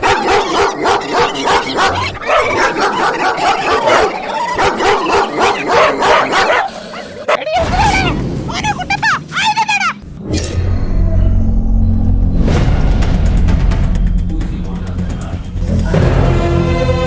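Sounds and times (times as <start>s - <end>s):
dogs barking and yelping: 0.0s - 7.6s.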